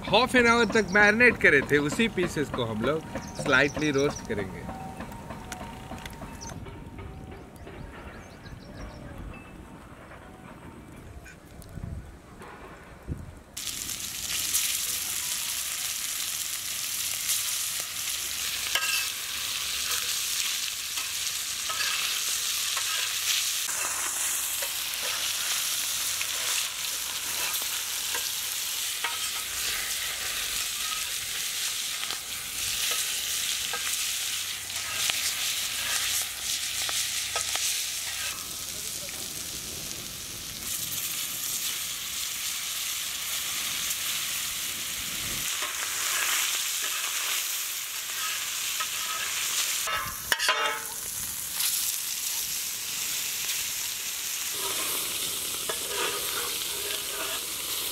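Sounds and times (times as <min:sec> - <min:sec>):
fish sizzling in hot oil: 0:13.6 - 0:57.9
oil crackles and pops: 0:13.6 - 0:57.9.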